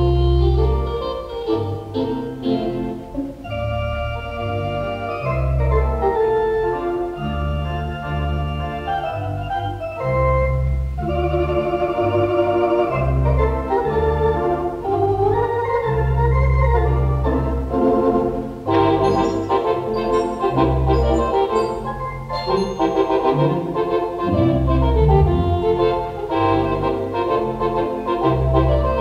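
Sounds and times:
theatre organ playing chords: 0.0 - 29.0.

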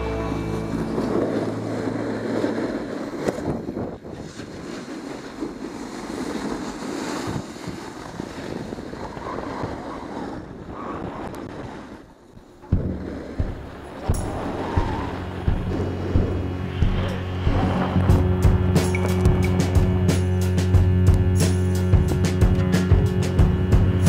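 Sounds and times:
wind on microphone: 0.0 - 21.4
skis scraping packed snow: 0.2 - 19.3.

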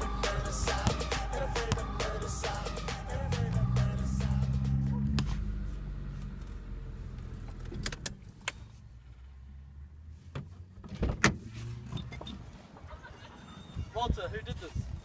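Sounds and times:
low hum: 0.0 - 7.6.

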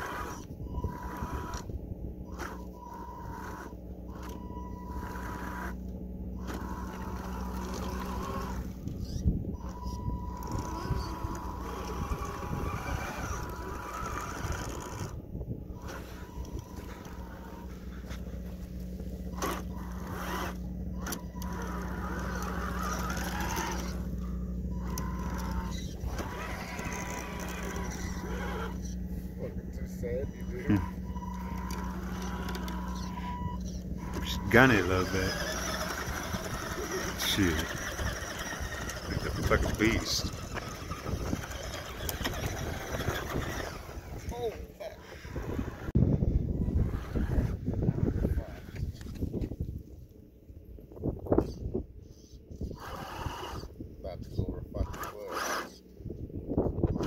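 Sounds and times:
rc truck motor whining: 0.0 - 50.2, 51.0 - 57.0.

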